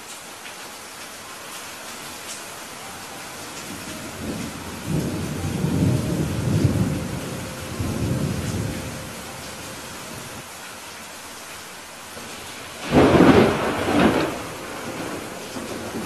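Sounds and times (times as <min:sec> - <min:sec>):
rain hissing: 0:00.0 - 0:16.0
thunder rumbling: 0:03.2 - 0:10.4, 0:12.2 - 0:16.0.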